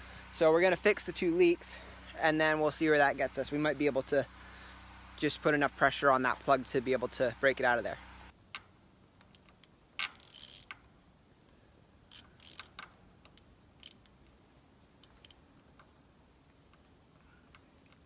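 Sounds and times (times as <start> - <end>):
hose clamp clicks and scrapes: 8.5 - 10.9, 12.1 - 14.2, 15.0 - 15.9.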